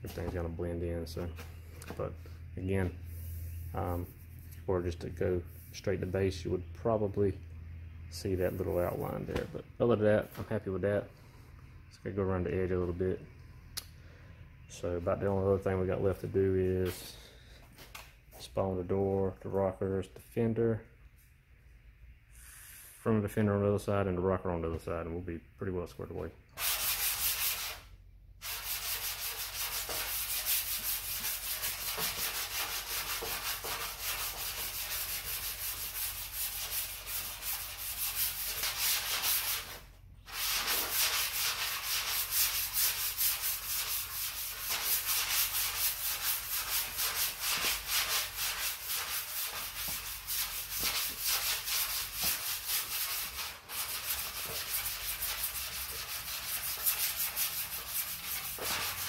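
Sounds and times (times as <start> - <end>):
hand sanding primer: 8.4 - 9.2, 26.6 - 59.0.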